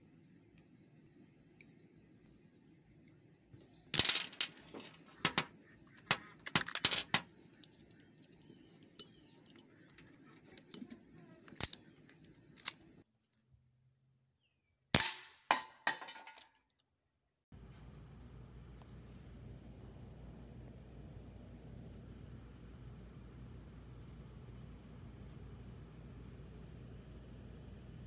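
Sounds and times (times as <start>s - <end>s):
small metallic clicks: 3.9s - 13.5s.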